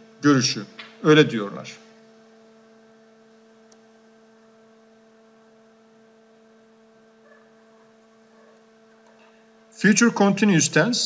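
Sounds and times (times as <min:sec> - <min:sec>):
faint electrical hum: 0:00.0 - 0:11.0.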